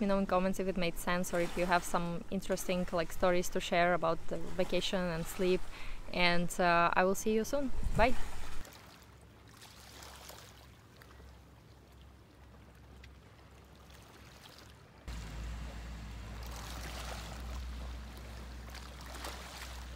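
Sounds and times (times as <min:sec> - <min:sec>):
sea water lapping on pebbly shore: 0:08.2 - 0:11.4, 0:12.3 - 0:15.6, 0:16.2 - 0:19.9.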